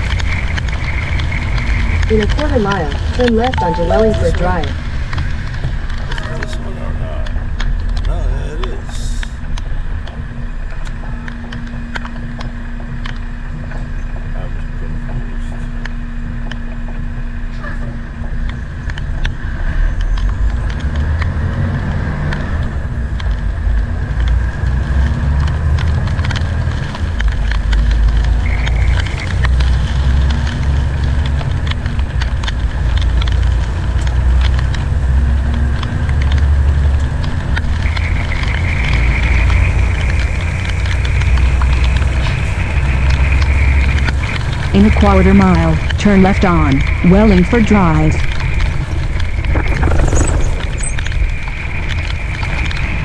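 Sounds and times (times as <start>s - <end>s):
rain hitting windshield: 0.0s - 3.6s, 21.9s - 53.0s
truck engine rumble: 0.0s - 53.0s.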